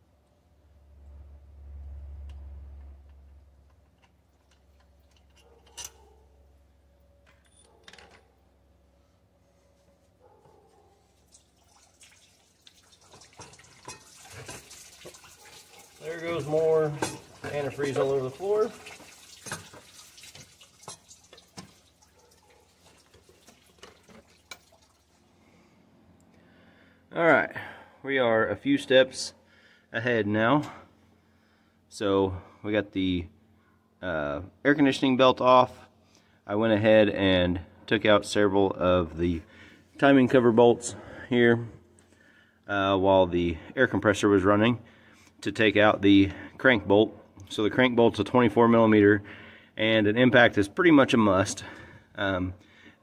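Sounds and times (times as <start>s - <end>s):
liquid dripping onto floor: 11.3s - 16.0s, 18.7s - 25.2s.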